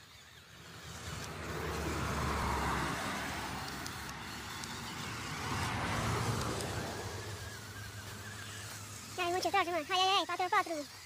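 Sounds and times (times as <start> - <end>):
toy truck motor whirring: 0.0 - 11.0.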